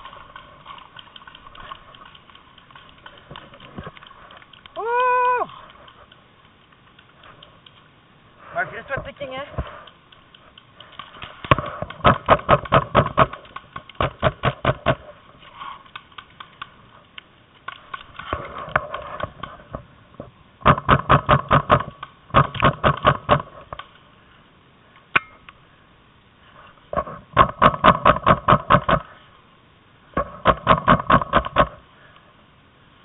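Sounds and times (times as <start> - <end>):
paintball markers firing: 9.6 - 15.1, 20.6 - 23.9.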